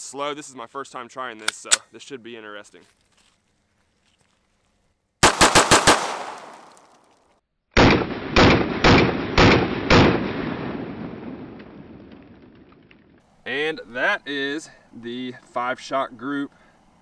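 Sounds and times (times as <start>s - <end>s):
pistol shots: 5.2s - 6.9s, 7.8s - 10.9s.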